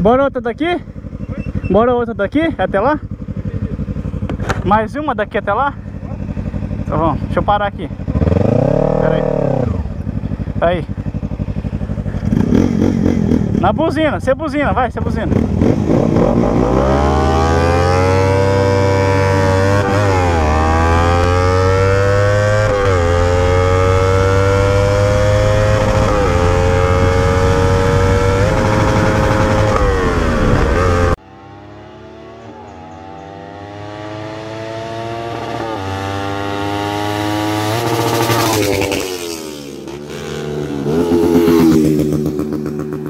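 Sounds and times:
motorcycle engines accelerating: 0:00.9 - 0:43.0
faint engine rising in pitch: 0:15.3 - 0:43.0.

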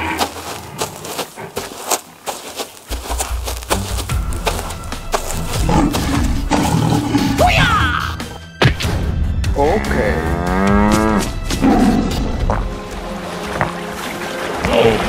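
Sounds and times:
background music: 0:02.9 - 0:15.0
cow mooing: 0:09.8 - 0:12.2.

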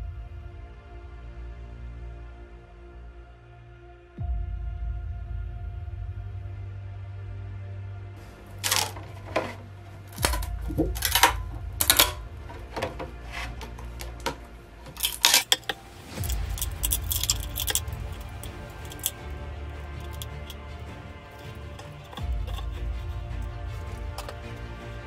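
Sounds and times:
background music: 0:00.0 - 0:25.0
metal sheet clicking and crackling: 0:08.6 - 0:19.2, 0:20.0 - 0:20.6, 0:21.3 - 0:24.4.

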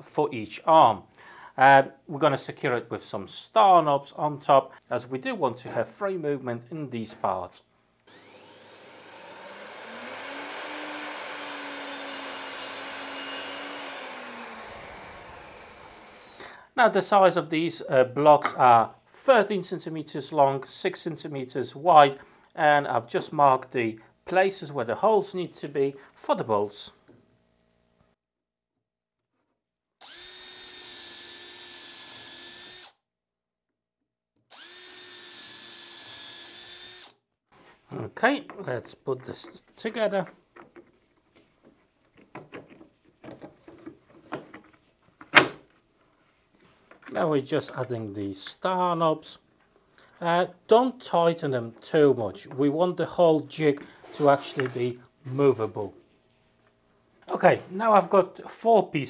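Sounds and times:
mitre saw motor whine: 0:08.1 - 0:16.4, 0:34.5 - 0:37.1
saw blade cutting chipboard: 0:08.1 - 0:16.5, 0:54.1 - 0:54.9.

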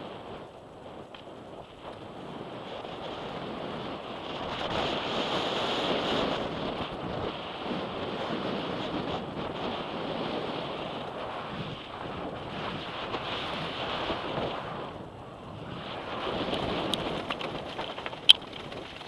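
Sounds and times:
wind rushing over microphone: 0:00.0 - 0:19.0
tyres rumbling on gravel: 0:16.2 - 0:19.0.

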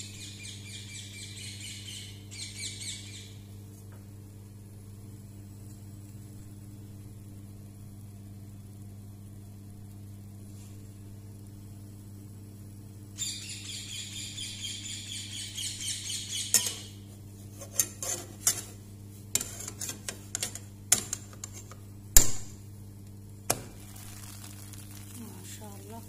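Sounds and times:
scraping in a frying pan: 0:16.6 - 0:21.8, 0:23.7 - 0:26.0
knocks and clanks on pan and grate: 0:17.6 - 0:22.5.

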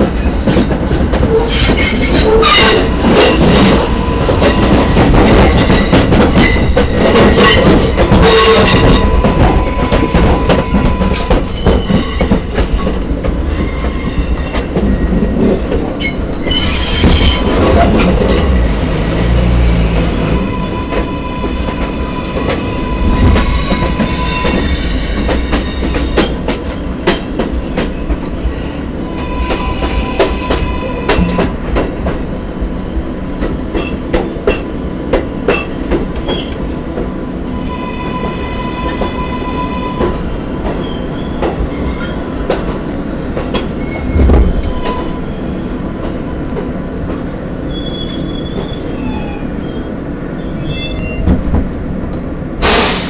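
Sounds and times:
subway train rumble: 0:00.0 - 0:53.0
wheels squealing: 0:47.6 - 0:51.6.

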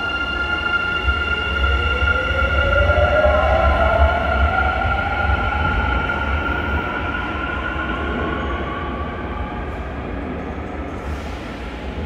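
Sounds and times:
low train rumble: 0:00.0 - 0:12.0.

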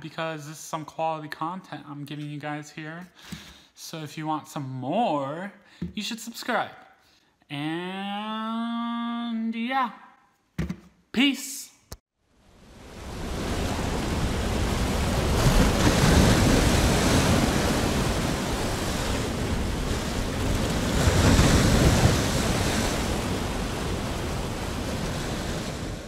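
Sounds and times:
waves breaking: 0:12.4 - 0:26.0.

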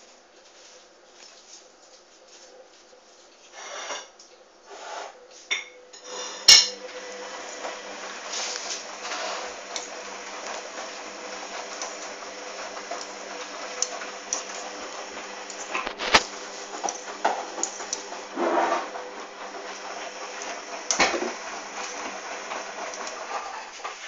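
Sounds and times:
washing machine running hum: 0:04.5 - 0:24.0
washing machine drum swishing: 0:07.6 - 0:24.0.

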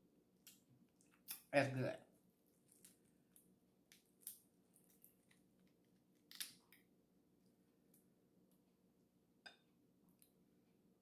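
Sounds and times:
crab shell cracking: 0:02.7 - 0:06.8.

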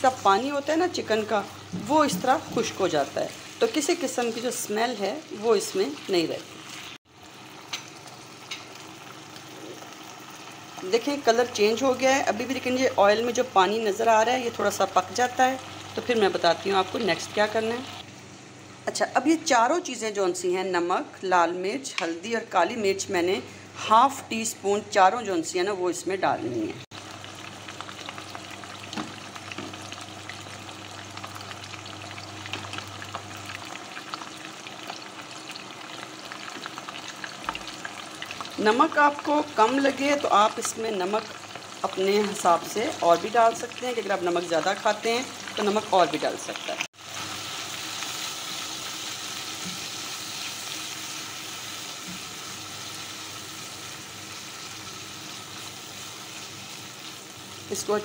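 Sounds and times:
chicken sizzling in hot oil: 0:00.0 - 0:18.1, 0:26.8 - 0:58.0.

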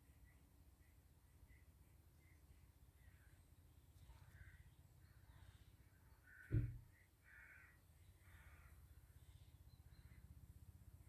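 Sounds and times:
harsh bird calls: 0:01.5 - 0:10.4
low thump: 0:06.5 - 0:06.8.

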